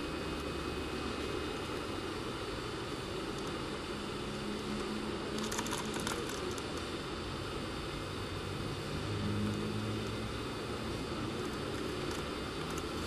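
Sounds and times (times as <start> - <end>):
distant engine hum: 0.0 - 13.0
rapid high clicks: 5.3 - 7.0.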